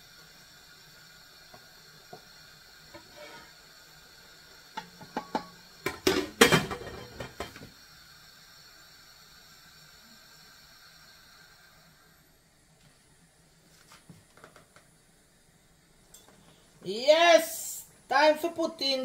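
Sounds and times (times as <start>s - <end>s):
faint steady hiss: 0.0s - 19.0s.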